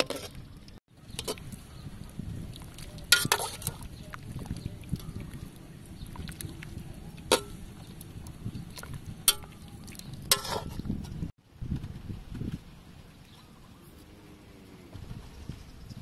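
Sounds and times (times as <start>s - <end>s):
metal ladle clinking in pot: 3.1s - 3.8s, 7.3s - 7.6s, 9.3s - 9.6s, 10.3s - 10.8s.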